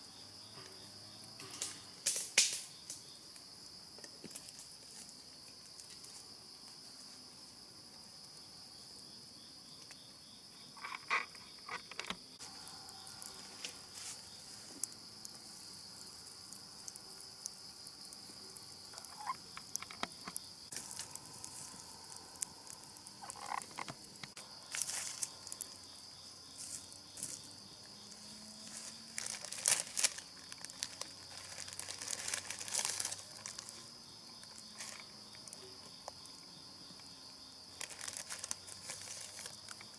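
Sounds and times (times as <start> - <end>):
high-pitched insect drone: 10.5 - 39.9
rustling and clicking of handling: 37.8 - 39.9.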